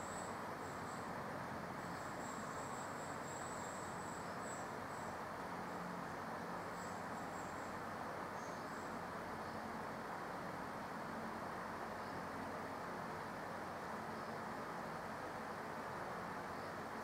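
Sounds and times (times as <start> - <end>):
faint high chirping: 0.0 - 9.7
background hiss: 0.0 - 17.0.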